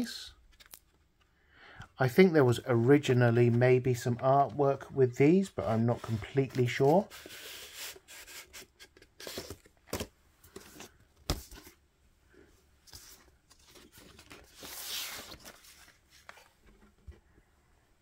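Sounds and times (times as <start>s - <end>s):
paper rustling: 5.6s - 11.8s, 12.8s - 17.2s.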